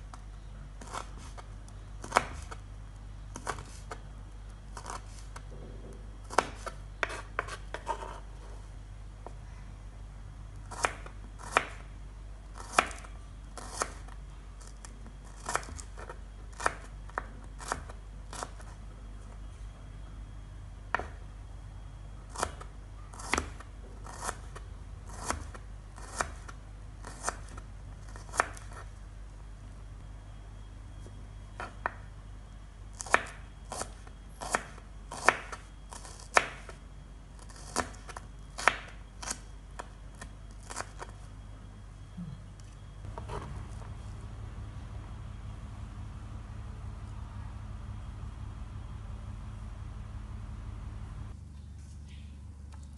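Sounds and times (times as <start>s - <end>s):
low hum: 0.0s - 23.1s, 39.0s - 52.9s.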